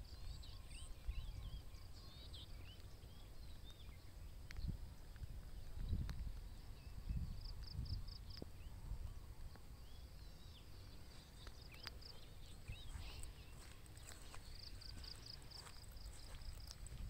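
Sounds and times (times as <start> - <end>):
small birds chirping: 0.0 - 17.0
footstep clicks: 11.2 - 17.0.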